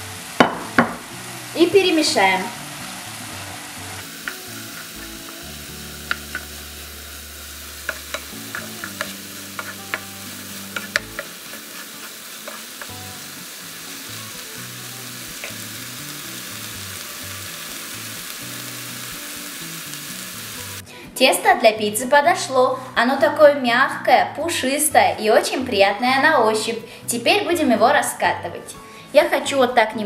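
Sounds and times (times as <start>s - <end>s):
meat sizzling in a frying pan: 0.0s - 20.8s
spatula scraping a pan: 7.9s - 10.1s, 10.7s - 12.9s.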